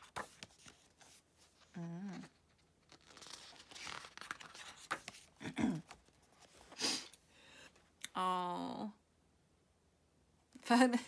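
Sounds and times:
pages turning and rustling: 0.0s - 7.1s.

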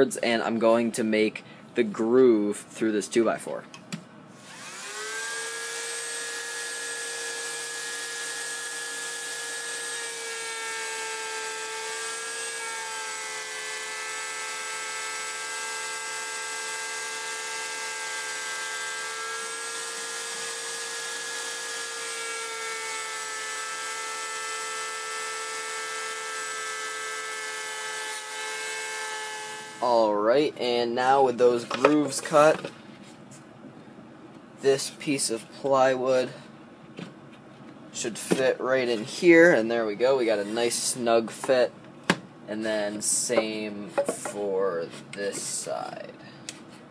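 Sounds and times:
router whining: 4.4s - 30.1s.

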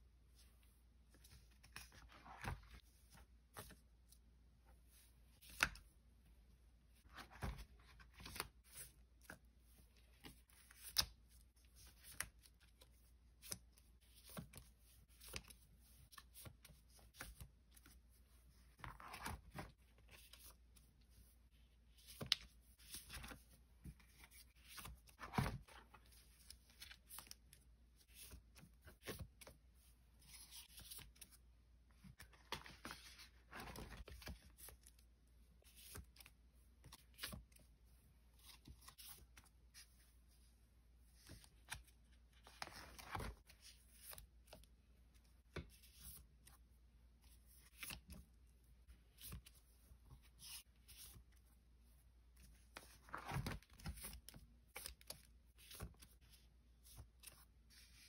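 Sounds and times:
cards and packaging rustling: 30.2s - 36.3s, 41.1s - 44.6s, 52.5s - 58.0s.

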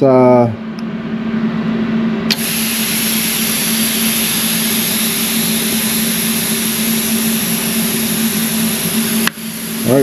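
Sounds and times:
steady low hum: 0.0s - 10.0s
compressed air hissing: 2.3s - 10.0s.

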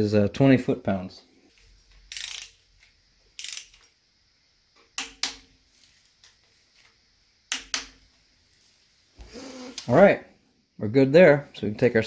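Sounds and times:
torque wrench clicking: 2.1s - 2.6s, 3.4s - 3.9s, 5.0s - 5.4s.

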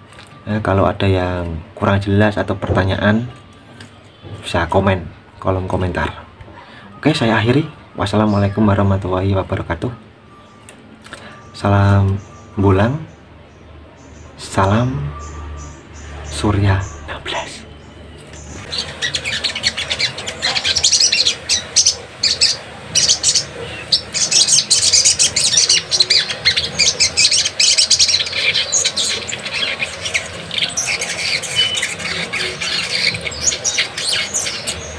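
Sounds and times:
bird chirping rapidly: 12.2s - 34.9s.

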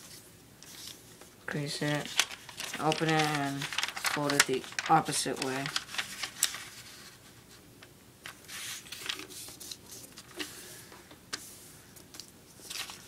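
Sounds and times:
paper rustling as folded: 0.0s - 7.6s, 8.2s - 10.6s, 12.2s - 13.0s
paper crinkling ticks: 1.8s - 6.9s, 7.8s - 10.5s, 12.0s - 13.0s.

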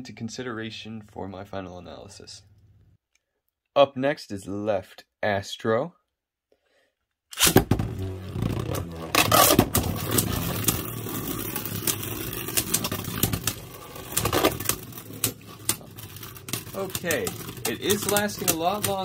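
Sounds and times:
spinning tops whirring: 7.4s - 19.0s
spinning tops clacking together: 9.4s - 19.0s.

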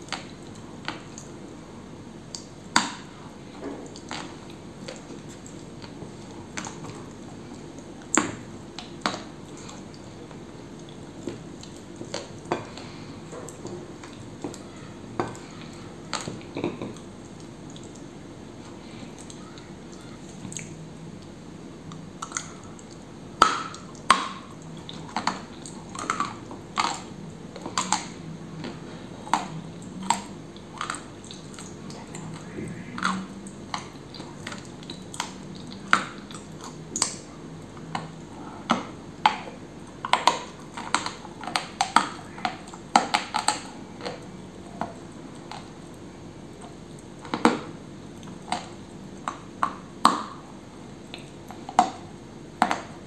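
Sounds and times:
crunchy chewing: 23.7s - 38.7s.

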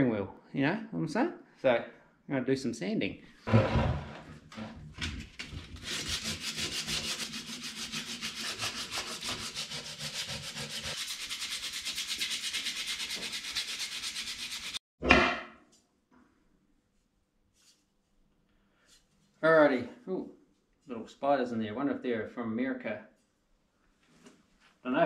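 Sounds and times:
sandpaper rasping back and forth: 5.7s - 14.8s.

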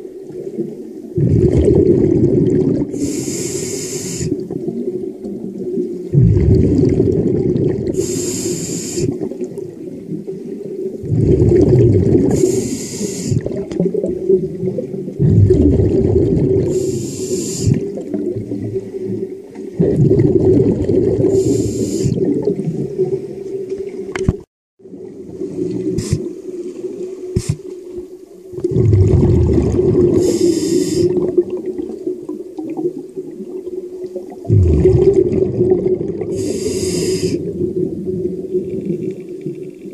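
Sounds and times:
exhaled bubbles burbling: 0.0s - 3.3s, 4.2s - 26.3s, 28.5s - 39.9s
regulator hissing inhale: 2.9s - 4.4s, 8.0s - 9.2s, 12.3s - 13.4s, 16.7s - 18.0s, 21.3s - 22.2s, 26.0s - 26.3s, 27.4s - 27.7s, 30.2s - 31.2s, 36.3s - 37.5s.

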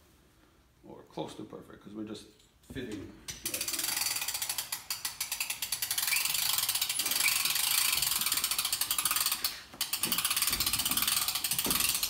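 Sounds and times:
ratchet clicking: 3.3s - 12.0s.

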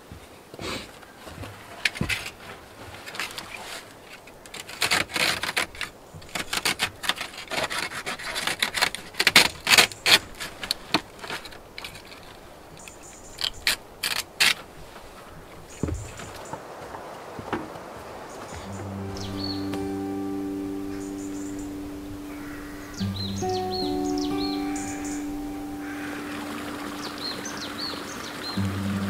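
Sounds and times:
mesh rustling and scraping: 1.2s - 16.6s.

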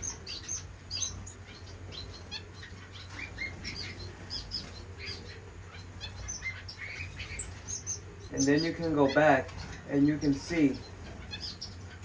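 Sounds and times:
finches chirping: 0.0s - 12.0s.

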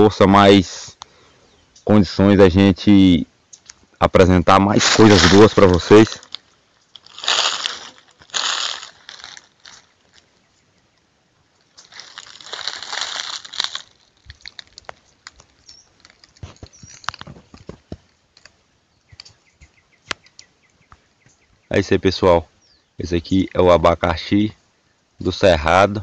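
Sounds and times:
dry leaves rustling and crackling: 4.7s - 10.5s, 11.5s - 18.5s.

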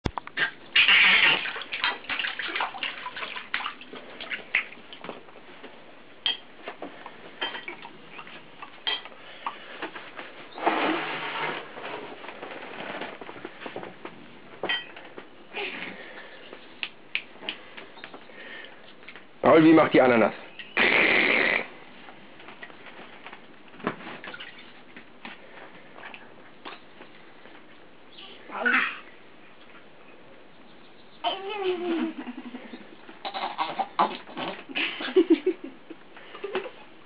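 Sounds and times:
baby splashing water: 0.4s - 5.1s, 24.2s - 24.7s.

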